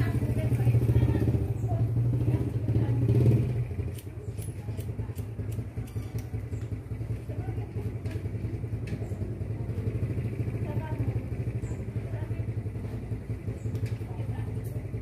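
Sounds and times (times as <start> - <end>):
low engine hum: 0.0 - 15.0
scissors snipping hair: 3.9 - 6.3.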